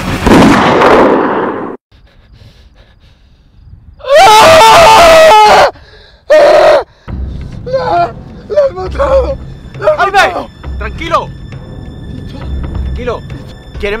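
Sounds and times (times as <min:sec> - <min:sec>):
man screaming: 0:04.0 - 0:06.9, 0:07.6 - 0:09.2.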